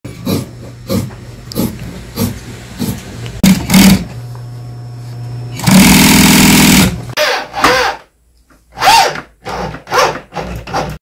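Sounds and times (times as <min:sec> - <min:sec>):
sewing machine running: 0:03.4 - 0:04.1, 0:05.6 - 0:07.0.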